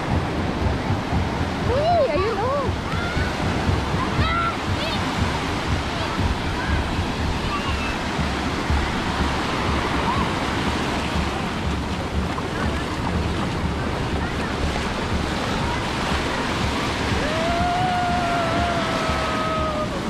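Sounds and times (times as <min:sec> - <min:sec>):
waves breaking on sandy shore: 0:00.0 - 0:20.0
wind rumble on microphone: 0:00.0 - 0:20.0.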